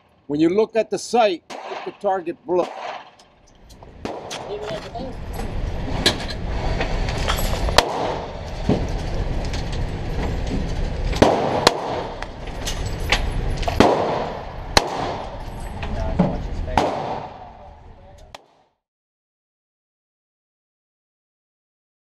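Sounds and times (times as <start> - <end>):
steady low rumble: 0.0 - 18.4
pistol shots echoing indoors: 2.6 - 3.2, 13.8 - 15.4.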